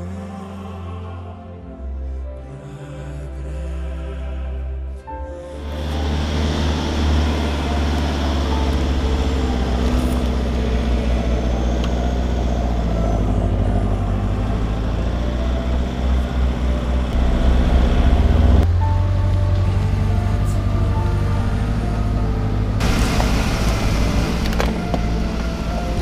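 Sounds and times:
tyres rolling over dirt: 5.6 - 26.0
vehicle engine running: 5.6 - 26.0.

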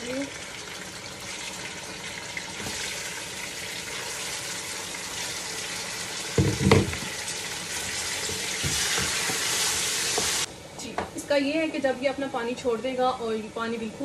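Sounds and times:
meat sizzling in hot oil: 0.0 - 10.5
plastic colander knock: 6.4 - 7.1.

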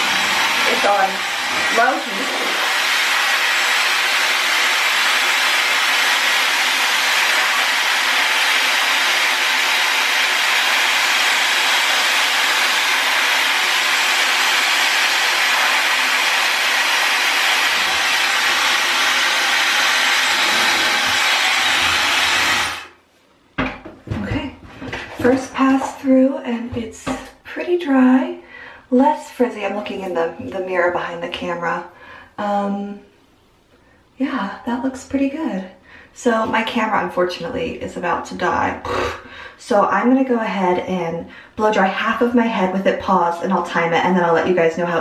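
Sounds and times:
hair dryer blowing air: 0.0 - 23.0.

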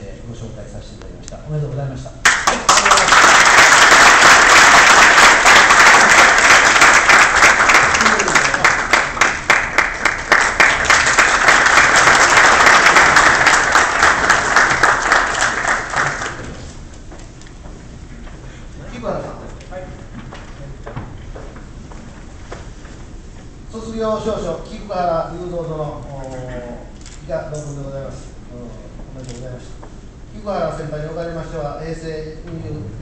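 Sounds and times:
audience applauding: 2.2 - 16.7.

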